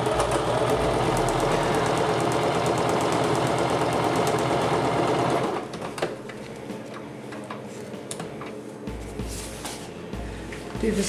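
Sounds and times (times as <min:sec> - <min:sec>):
sewing machine stitching: 0:00.0 - 0:06.1.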